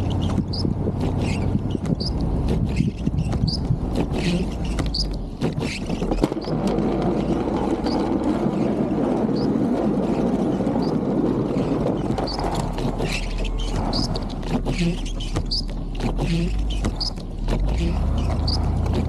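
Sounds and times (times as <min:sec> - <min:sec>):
snow pushed by plow blade: 0:00.0 - 0:19.0
truck engine running: 0:00.0 - 0:19.0.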